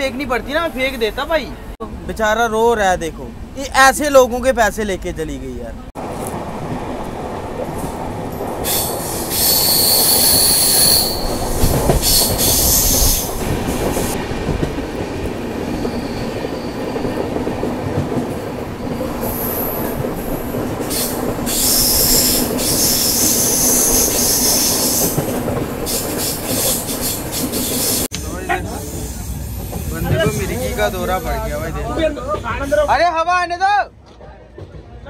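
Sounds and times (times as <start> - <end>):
train wheels rumbling on rails: 5.9 - 32.9
wheel flange squeal: 8.6 - 13.4, 15.7 - 17.1, 20.9 - 25.2.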